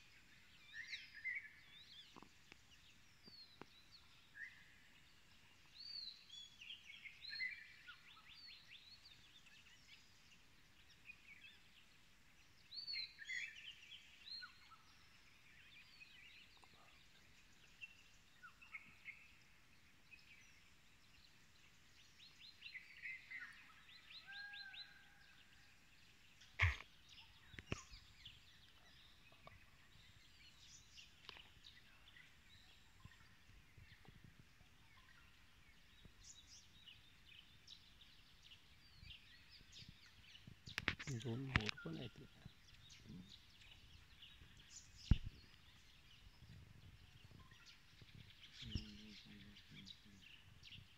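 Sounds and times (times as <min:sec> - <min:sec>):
birds chirping and trilling: 0:12.4 - 0:50.9
sharp knocks: 0:26.6 - 0:26.8.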